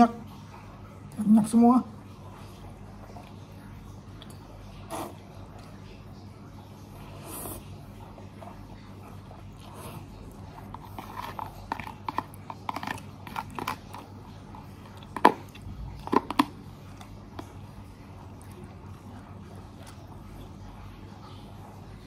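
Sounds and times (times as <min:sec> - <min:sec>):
person chewing noodles: 0:02.4 - 0:06.0, 0:06.9 - 0:20.8.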